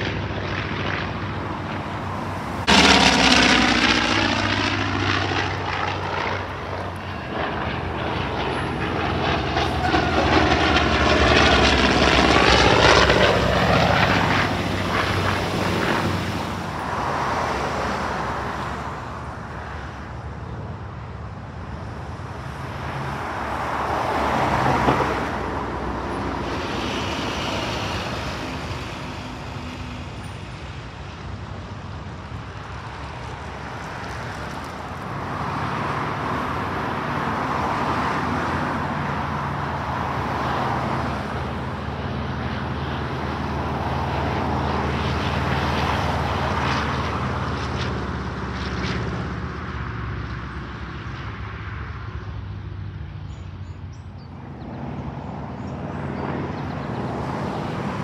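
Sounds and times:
bus driving past: 0.0s - 21.2s, 22.7s - 31.6s
propeller aircraft engine drone: 0.0s - 58.0s.

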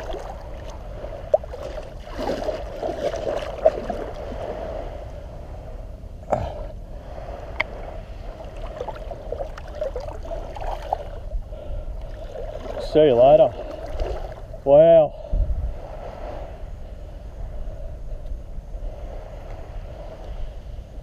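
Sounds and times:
small splashes: 0.0s - 4.5s, 8.4s - 11.1s, 13.6s - 14.4s
seawater sloshing and lapping: 0.0s - 5.1s, 7.2s - 14.6s.

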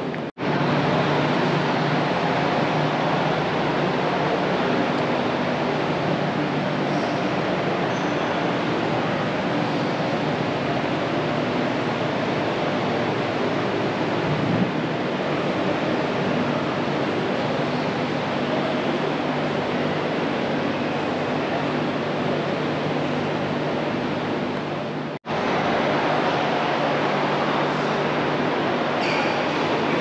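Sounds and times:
indistinct crowd voices: 0.0s - 30.0s.

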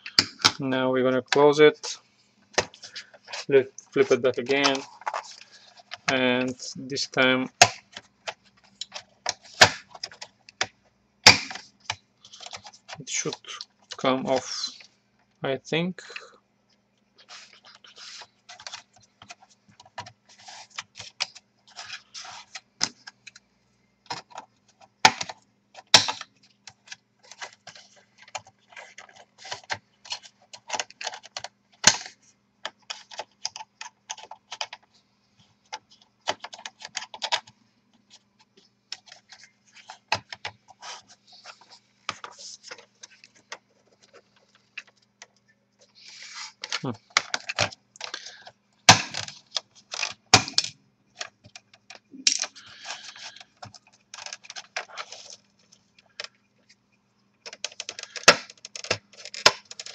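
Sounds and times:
sharp plastic cracks: 7.5s - 14.5s, 24.1s - 34.8s, 46.6s - 55.4s, 57.4s - 59.9s.

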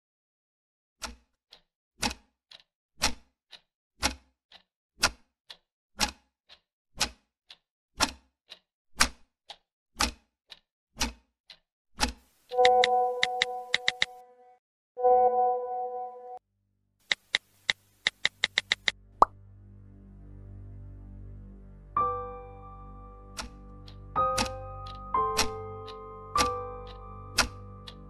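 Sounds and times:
wall clock ticking: 1.0s - 14.1s, 17.1s - 19.0s, 23.3s - 28.0s
chord of ringing tones: 12.6s - 13.8s, 15.0s - 16.4s.

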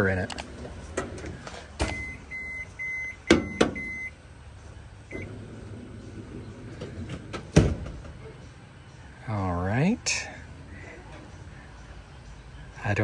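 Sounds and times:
motorized drawer shutting: 5.1s - 8.1s.

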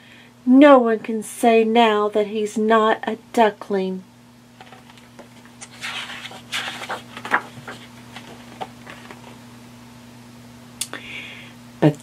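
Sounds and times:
page tapping and ticking: 4.6s - 9.2s
book page turning: 4.6s - 9.4s.

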